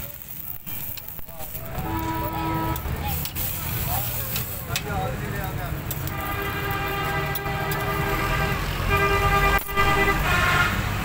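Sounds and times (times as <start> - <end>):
low traffic rumble: 0.0 - 11.0
vehicle horns honking: 1.6 - 3.1, 6.0 - 11.0.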